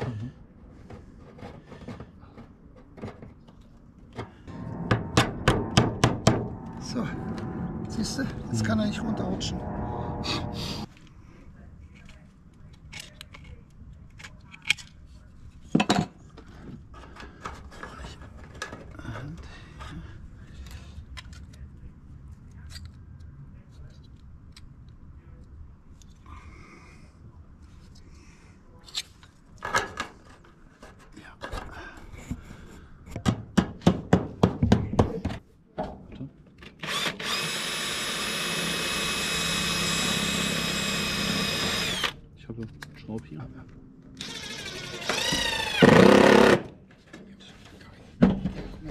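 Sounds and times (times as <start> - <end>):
cordless drill whine: 36.9 - 42.2, 44.2 - 46.6.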